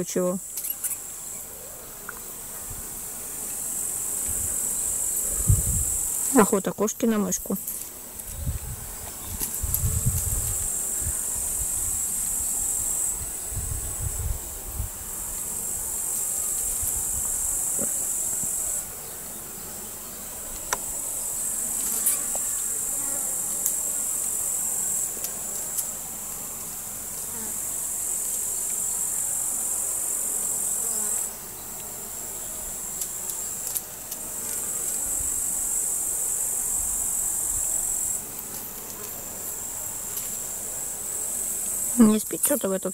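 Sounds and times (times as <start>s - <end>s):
insect trilling: 0.0s - 2.3s, 3.4s - 18.9s, 27.3s - 42.9s.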